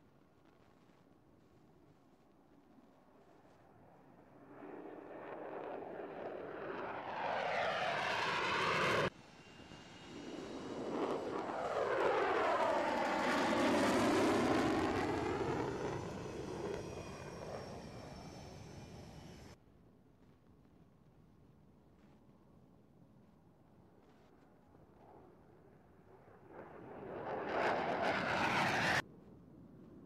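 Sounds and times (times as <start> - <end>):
taxiing jet engines with high whine: 3.1 - 19.6, 24.7 - 29.0
jet engine at takeoff power: 4.2 - 19.6, 26.1 - 29.0.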